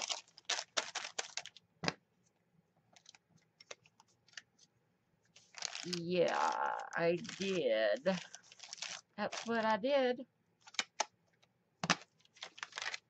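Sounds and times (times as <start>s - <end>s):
paper rustling and scraping: 5.3s - 6.0s, 7.2s - 9.7s, 12.2s - 13.0s.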